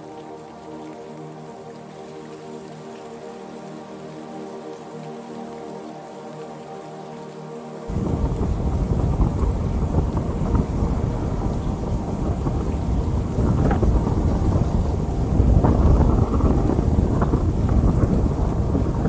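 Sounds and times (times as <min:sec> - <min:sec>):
steady rain: 0:00.0 - 0:19.0
rolling thunder: 0:07.9 - 0:19.0.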